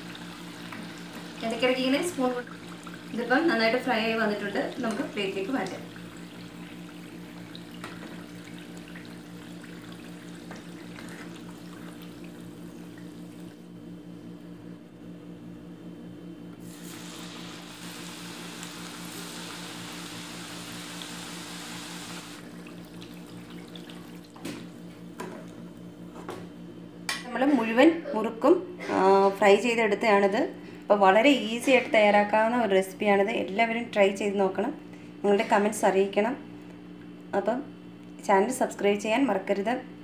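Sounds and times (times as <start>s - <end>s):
oil sizzling in a pan: 16.6s - 22.6s.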